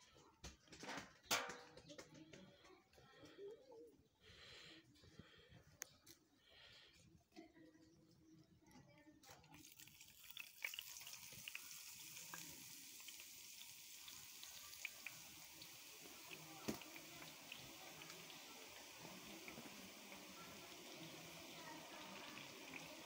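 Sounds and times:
batter sizzling in hot oil: 9.6 - 23.0.

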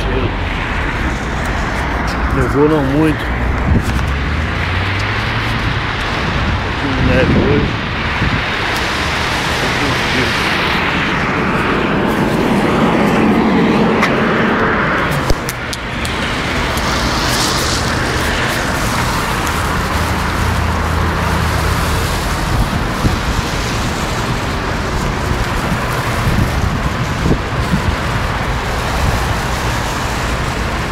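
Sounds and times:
cars passing on wet street: 0.0 - 30.9.

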